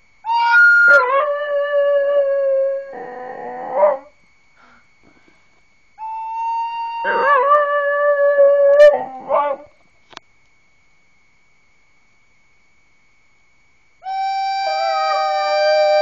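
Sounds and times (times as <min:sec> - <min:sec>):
dog howling: 0:00.3 - 0:04.1, 0:06.4 - 0:09.7, 0:14.1 - 0:16.0
recorder playing long notes: 0:14.0 - 0:16.0.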